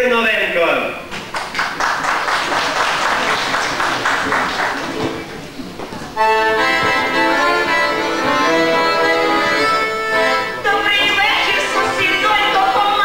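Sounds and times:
accordions playing folk tune: 0:06.1 - 0:13.0
woman singing: 0:10.6 - 0:13.0.

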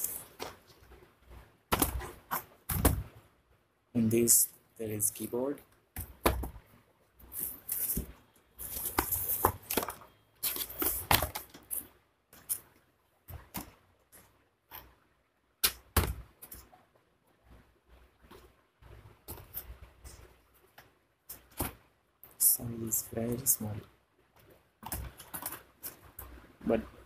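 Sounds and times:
plastic wrapping rustling: 0:00.0 - 0:01.0, 0:07.2 - 0:11.9.

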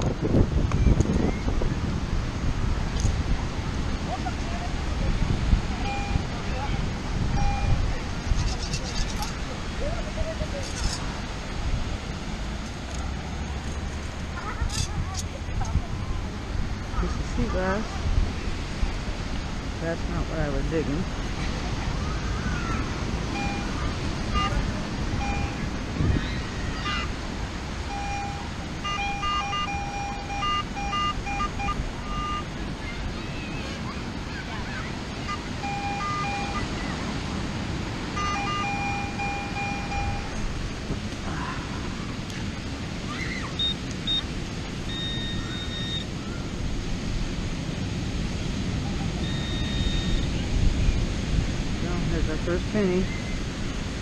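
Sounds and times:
wind and surf: 0:00.0 - 0:54.0
metal detector beeps: 0:05.8 - 0:06.3, 0:07.3 - 0:07.8, 0:23.3 - 0:24.6, 0:25.2 - 0:25.7, 0:27.8 - 0:32.5, 0:35.3 - 0:36.8, 0:38.2 - 0:40.4, 0:43.6 - 0:44.3, 0:44.9 - 0:46.1, 0:49.2 - 0:50.3.

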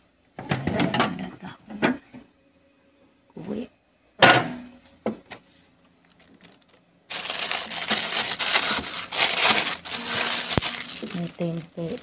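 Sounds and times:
plastic bag crinkling: 0:06.0 - 0:12.0.

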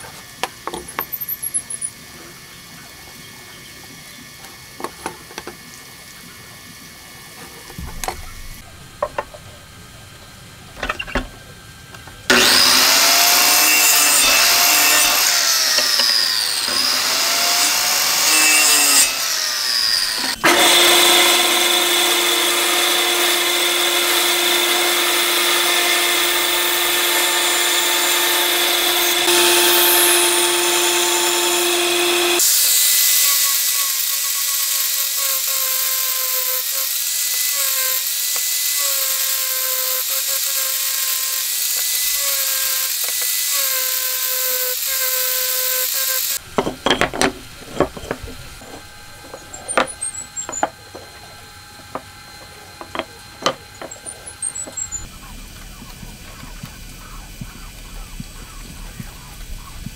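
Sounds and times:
angle grinder sanding whine: 0:07.4 - 0:59.9
bandsaw cutting wood: 0:12.3 - 0:55.1
miter saw cutting wood: 0:12.3 - 0:59.7.

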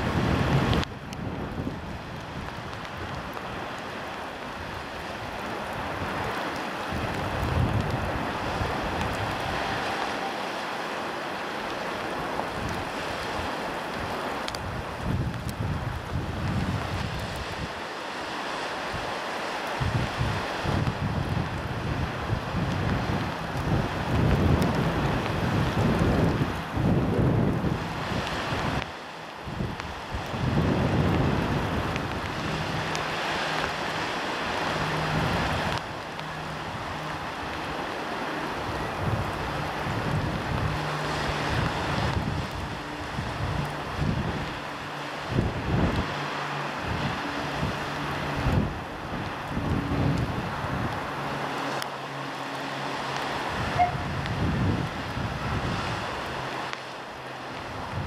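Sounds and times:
sea surf breaking on shore: 0:00.0 - 0:58.0
wind: 0:00.0 - 0:58.0.

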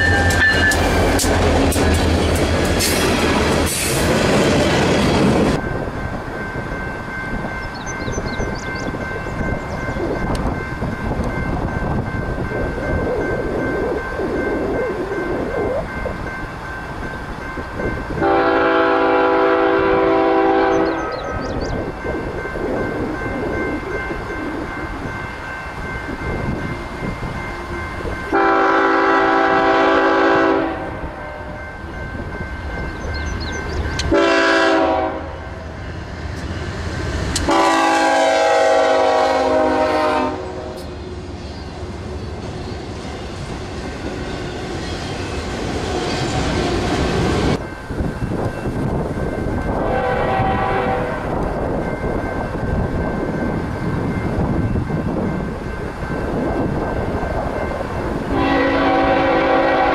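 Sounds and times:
train rumble: 0:00.0 - 0:59.9
locomotive air horn blasts: 0:18.2 - 0:21.2, 0:28.3 - 0:31.6, 0:34.1 - 0:35.5, 0:37.5 - 0:40.9, 0:49.8 - 0:51.3, 0:58.3 - 0:59.9.

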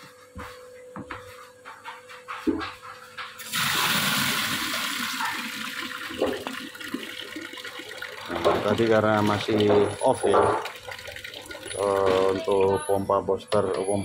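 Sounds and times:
water pouring into plastic bucket: 0:03.4 - 0:12.7.

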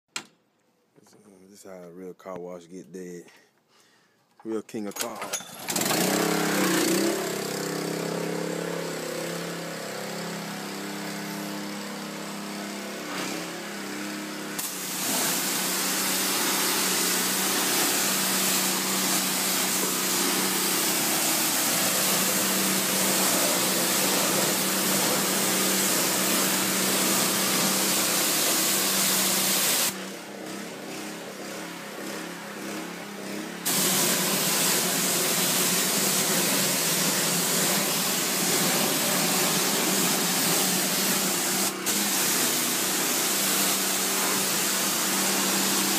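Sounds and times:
small gas engine running: 0:05.5 - 0:45.9
water jet hissing: 0:14.6 - 0:30.0, 0:33.7 - 0:45.9.

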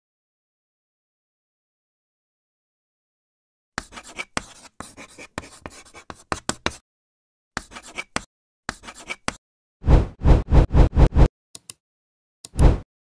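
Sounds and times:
chalk scratching on chalkboard: 0:03.8 - 0:06.8, 0:07.6 - 0:09.4.

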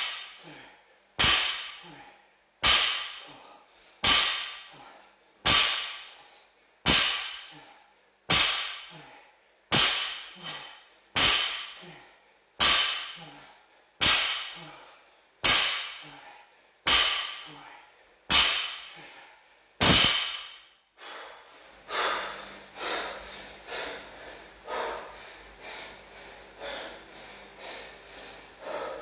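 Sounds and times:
barbell striking floor mat: 0:01.2 - 0:01.8, 0:02.6 - 0:03.3, 0:04.0 - 0:04.7, 0:05.5 - 0:06.1, 0:06.9 - 0:07.5, 0:08.3 - 0:08.9, 0:09.7 - 0:11.8, 0:12.6 - 0:13.2, 0:14.0 - 0:14.6, 0:15.4 - 0:16.0, 0:16.9 - 0:17.4, 0:18.3 - 0:18.9, 0:19.8 - 0:20.7.

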